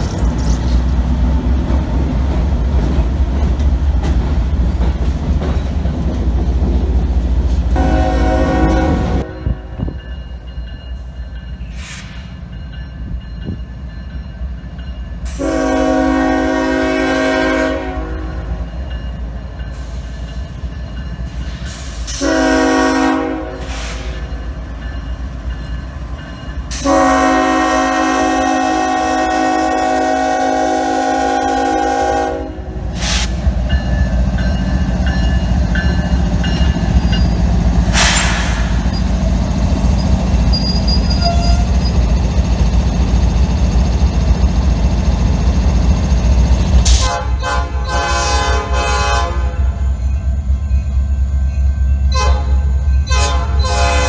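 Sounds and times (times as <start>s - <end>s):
freight train rumble: 0.0s - 54.0s
locomotive engine rumble: 0.0s - 54.0s
locomotive air horn blasts: 7.8s - 9.7s, 15.3s - 18.5s, 22.1s - 24.1s, 26.7s - 33.3s, 46.9s - 49.8s, 52.1s - 54.0s.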